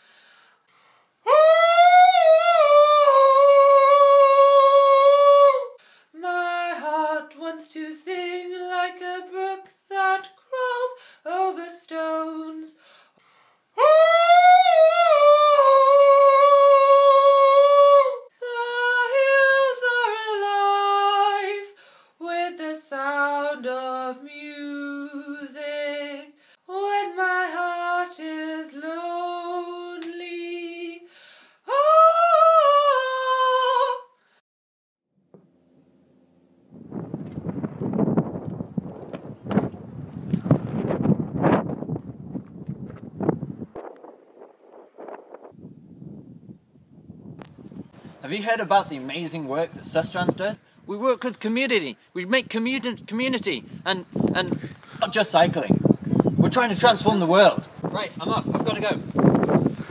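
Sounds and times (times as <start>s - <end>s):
person singing unaccompanied: 1.2s - 12.8s, 13.8s - 34.2s.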